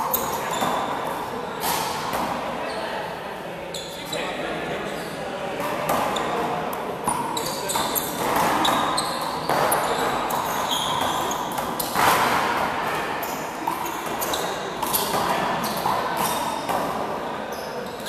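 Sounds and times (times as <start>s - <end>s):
shoes squeaking on gym floor: 0.0s - 1.1s, 3.7s - 5.2s, 7.1s - 12.2s, 13.2s - 16.7s, 17.4s - 18.0s.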